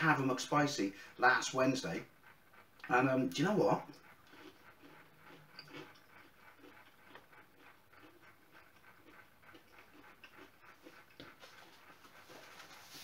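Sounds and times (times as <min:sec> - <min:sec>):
man chewing crunchy food: 0:02.7 - 0:13.0.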